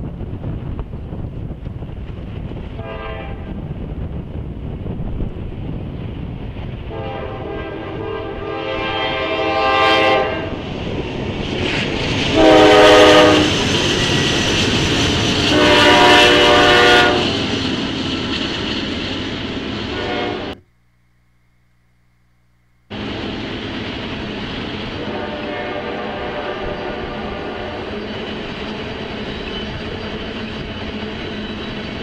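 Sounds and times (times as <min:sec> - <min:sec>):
train rumbling on rails: 0:00.0 - 0:20.6, 0:22.9 - 0:32.0
locomotive horn blasts: 0:02.8 - 0:03.5, 0:06.9 - 0:10.6, 0:12.3 - 0:13.6, 0:15.5 - 0:17.4, 0:19.9 - 0:20.6, 0:25.0 - 0:27.9.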